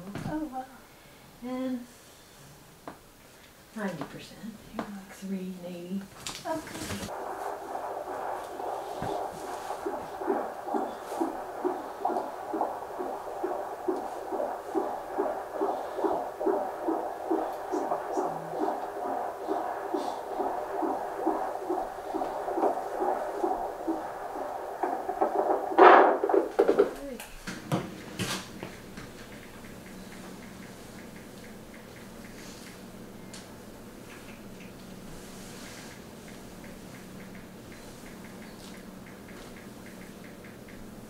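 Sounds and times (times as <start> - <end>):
fetal heartbeat on doppler speaker: 6.8 - 27.1.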